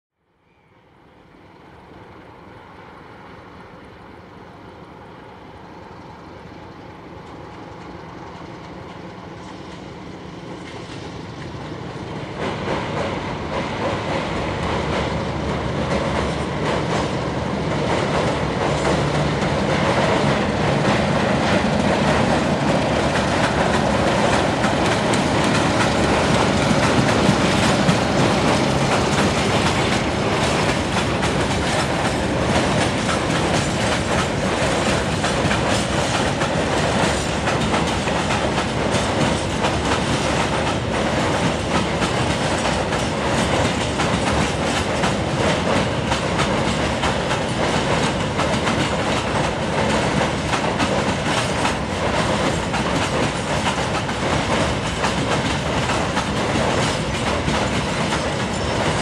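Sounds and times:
diesel locomotive engine: 0.3s - 59.0s
wagon wheels clattering on rails: 12.4s - 59.0s.

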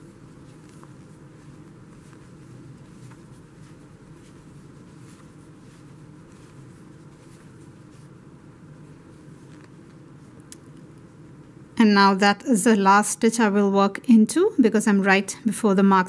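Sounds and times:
crochet hook rustling yarn: 0.0s - 11.2s
low room hum: 0.0s - 16.0s.

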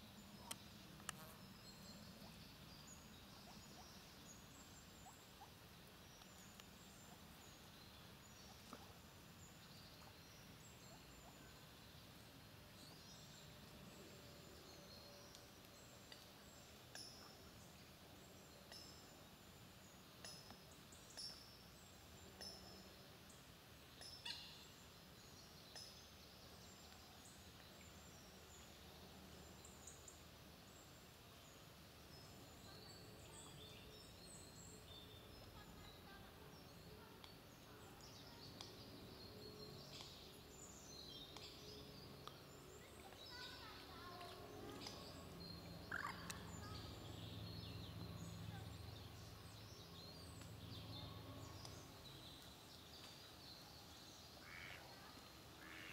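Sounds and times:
birds chirping and twittering: 0.0s - 55.9s
quiet outdoor ambience: 0.0s - 55.9s.

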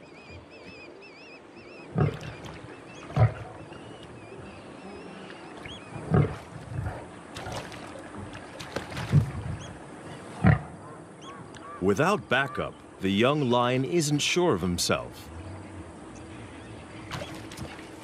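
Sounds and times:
lion snarling: 3.1s - 7.7s.

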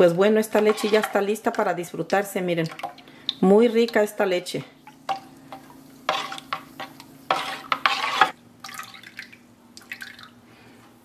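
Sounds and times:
spoon stirring milk in bowl: 0.5s - 1.3s, 4.9s - 8.4s
milk sloshing and splashing: 7.9s - 10.4s.

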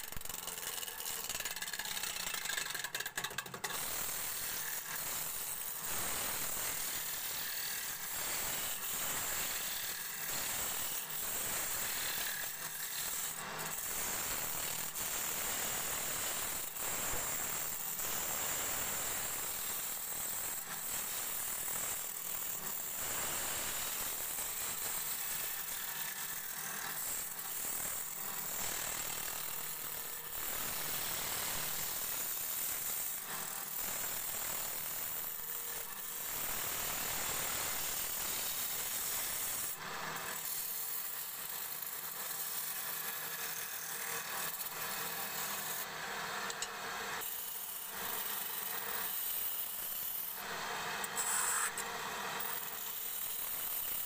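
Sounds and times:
turning tool scraping wood: 0.0s - 4.7s, 51.0s - 51.8s.

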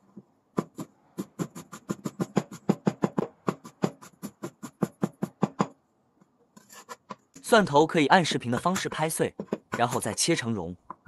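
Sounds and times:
cleaver chopping on wooden board: 0.6s - 5.8s.

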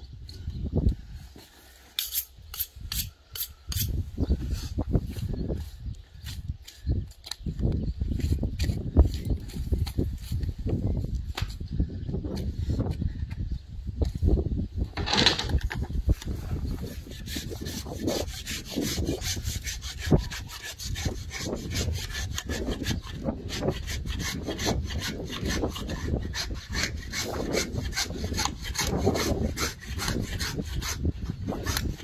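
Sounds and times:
blade scraping meat: 16.6s - 32.0s.

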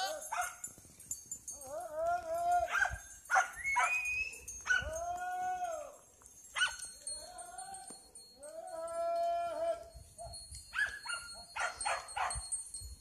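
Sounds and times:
dog barking in high yelps: 0.0s - 0.6s, 2.6s - 5.0s, 6.6s - 6.8s, 10.7s - 12.4s.

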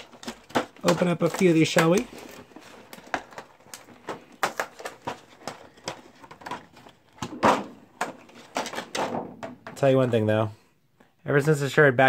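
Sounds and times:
plastic cover rustling scrape: 0.0s - 9.1s.

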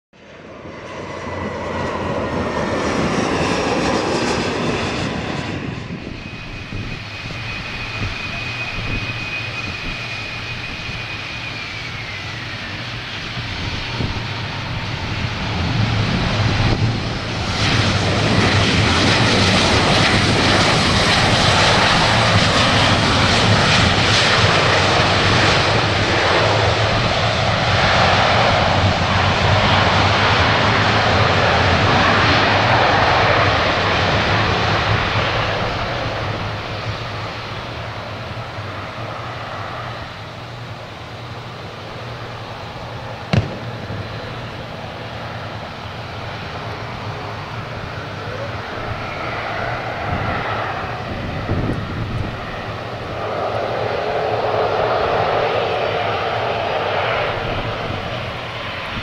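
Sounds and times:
jet engine roar: 0.2s - 59.0s
jet engine whine: 0.2s - 59.0s.

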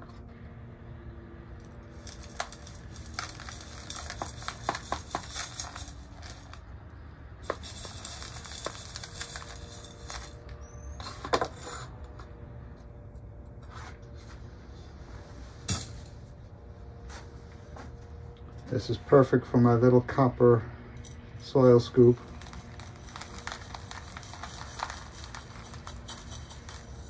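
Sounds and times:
soil pouring into plastic pot: 2.0s - 6.6s, 7.4s - 10.4s, 22.2s - 27.0s.

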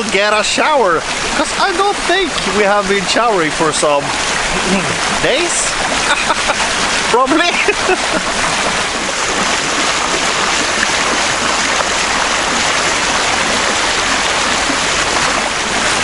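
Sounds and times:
water rushing along boat hull: 0.0s - 16.0s.

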